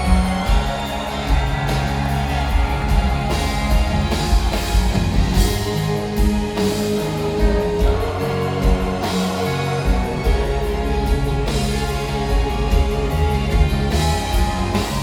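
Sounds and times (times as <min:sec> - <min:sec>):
rock band playing live: 0:00.0 - 0:15.0.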